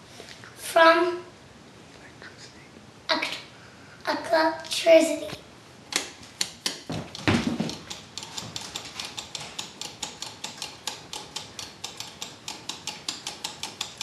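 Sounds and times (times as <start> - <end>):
thump: 6.9 - 7.8
rapid ticking: 7.7 - 14.0.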